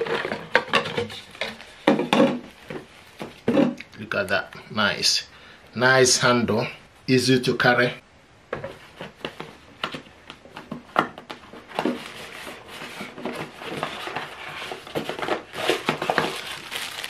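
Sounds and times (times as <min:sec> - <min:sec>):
plastic bag crinkling: 0:13.6 - 0:17.0.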